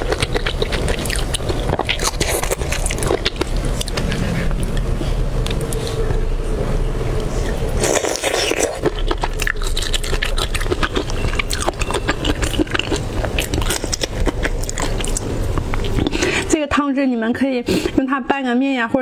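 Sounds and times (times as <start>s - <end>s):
prawn shell tearing: 0.0s - 4.0s.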